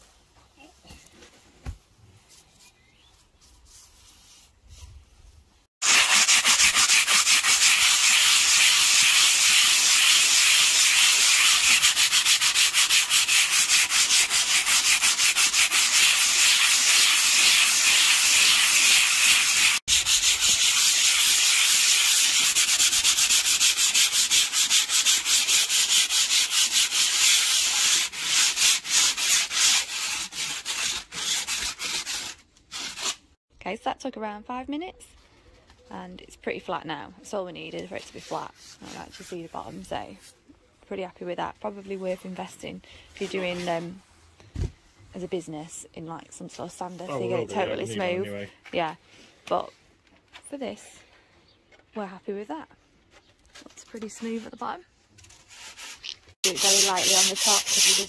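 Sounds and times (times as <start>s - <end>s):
sandpaper scratching concrete: 5.8s - 33.3s, 37.8s - 40.3s, 41.8s - 44.0s, 53.6s - 58.0s.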